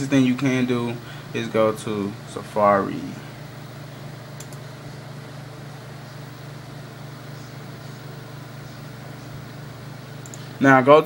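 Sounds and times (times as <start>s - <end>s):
low mechanical hum: 0.0s - 11.0s
faint clicks: 10.2s - 10.5s.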